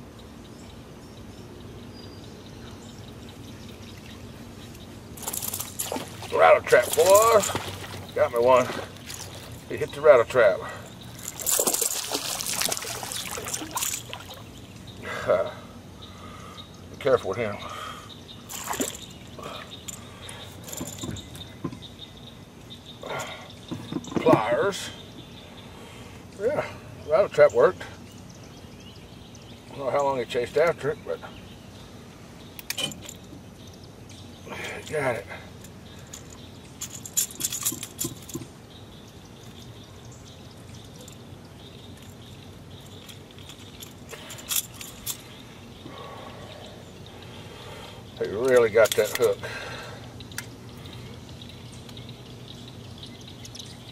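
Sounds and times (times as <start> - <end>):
knocks and rattles in canoe: 5.2 - 9.6
water splashes: 5.2 - 9.8, 10.6 - 14.6, 18.5 - 19.7.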